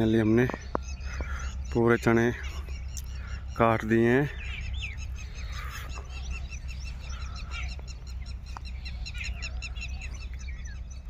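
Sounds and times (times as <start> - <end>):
birds chirping: 0.0 - 11.0
low steady rumble: 0.0 - 11.0.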